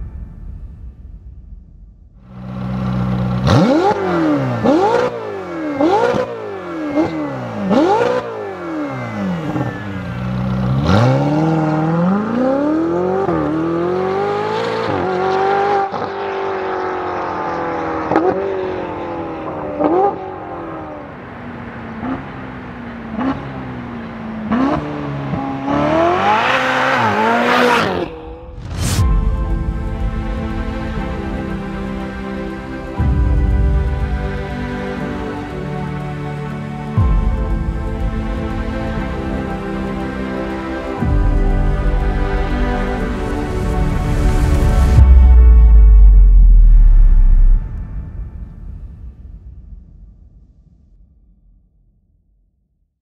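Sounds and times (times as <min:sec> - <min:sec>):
car engine idling and revving: 0:00.0 - 0:49.6
car passing close by: 0:03.4 - 0:29.3.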